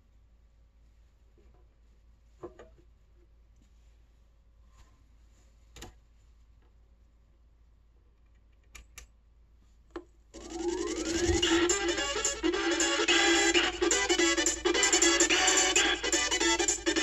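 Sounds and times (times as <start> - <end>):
music from record player: 10.4 - 17.0.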